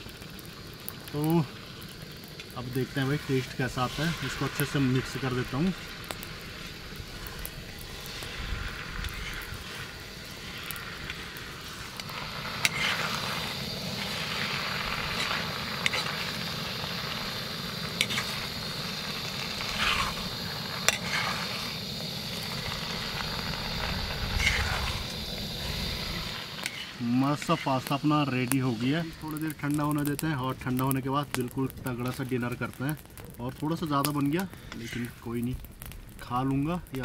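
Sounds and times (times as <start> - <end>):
pasta sizzling in pan: 0.0 - 37.0
utensil scraping and knocking pan: 12.6 - 13.1, 20.8 - 21.5.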